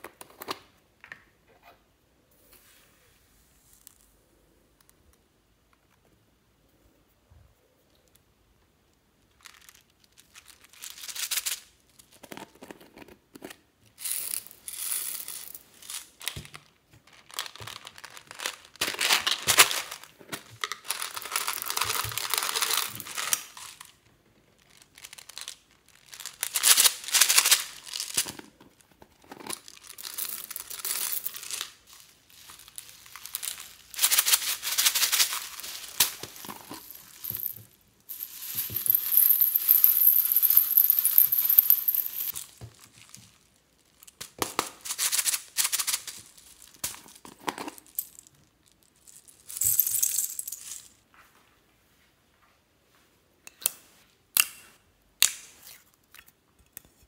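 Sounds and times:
plastic beads pouring and rattling: 9.3 - 12.1, 14.0 - 28.4, 29.4 - 44.2.

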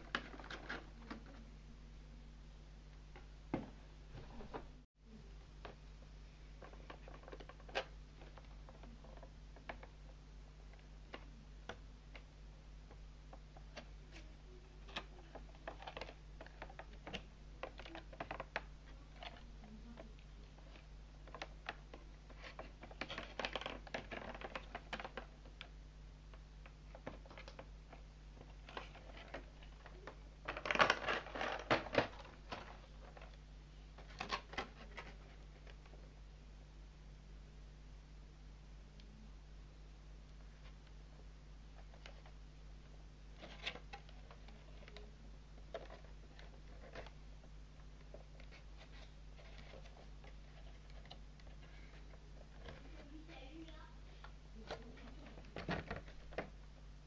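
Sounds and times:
low electrical hum: 0.0 - 57.0
plastic packaging crinkling: 20.4 - 25.6, 28.4 - 33.4.

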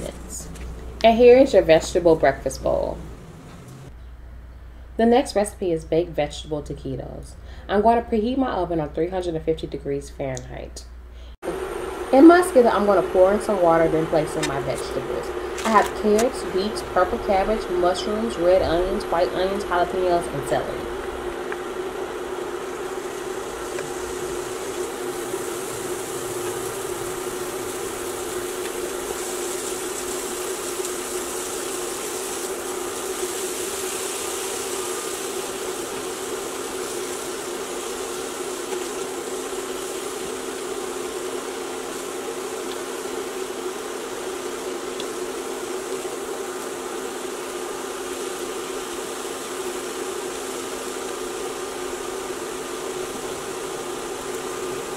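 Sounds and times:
electric hum: 0.0 - 54.9
water simmering with hiss: 11.4 - 54.9.

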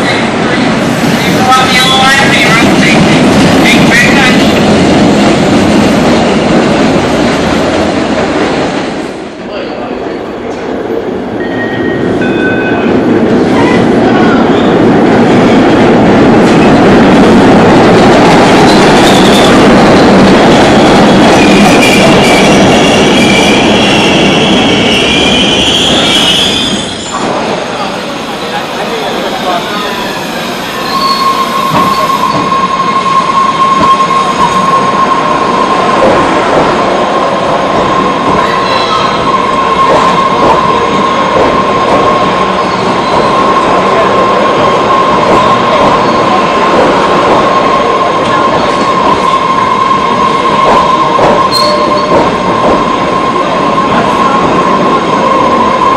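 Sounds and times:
subway train wheels roaring: 0.0 - 55.9
high wheel squeals: 29.6 - 35.3, 50.3 - 52.1.

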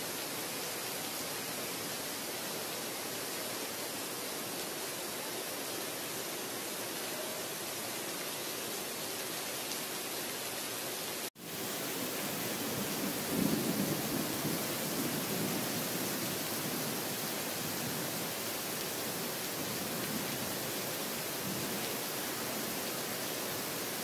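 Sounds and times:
heavy rain pouring: 6.2 - 24.0
low rumble of thunder: 12.3 - 18.2.

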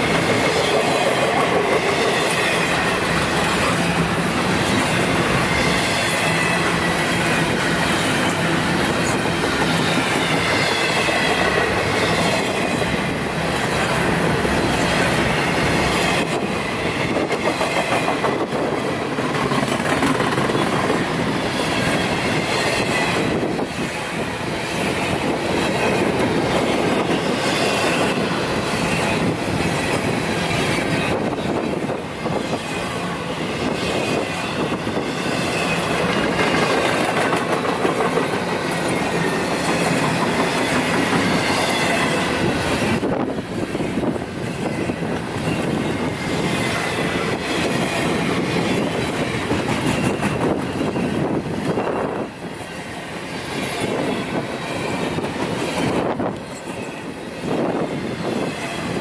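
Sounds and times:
train wheels rumbling on rails: 0.0 - 59.0
high wheel squeal: 21.5 - 37.1.

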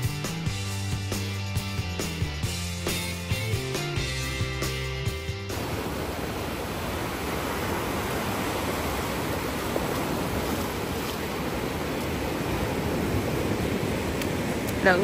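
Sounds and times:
sea waves breaking on beach: 5.5 - 15.0.

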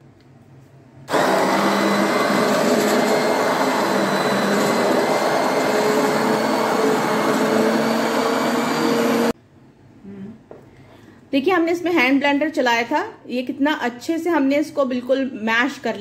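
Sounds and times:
immersion blender running: 1.1 - 9.4.

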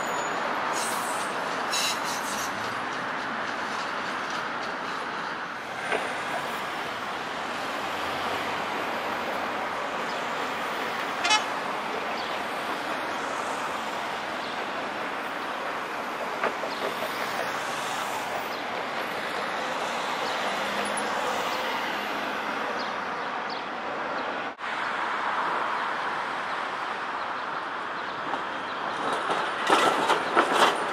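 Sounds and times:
trams running on track: 0.0 - 30.9
urban street noise: 0.0 - 30.9.

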